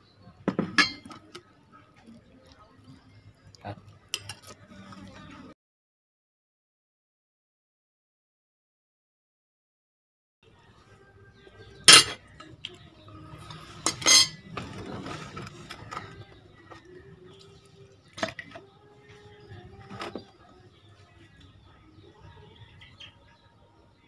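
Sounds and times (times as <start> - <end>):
spoon and crockery clinking: 0.5 - 1.3, 4.1 - 4.6, 11.8 - 12.6, 13.5 - 14.5.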